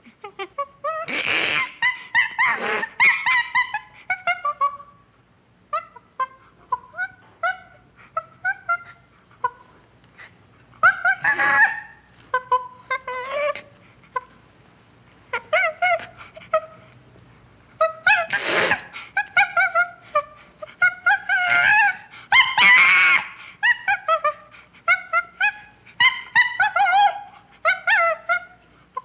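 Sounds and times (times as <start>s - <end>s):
chimpanzee high calls: 0.3s - 4.9s, 5.7s - 14.4s, 17.8s - 29.0s
chimpanzee harsh screams: 0.9s - 4.5s, 10.8s - 13.6s, 18.0s - 19.8s, 20.9s - 28.3s.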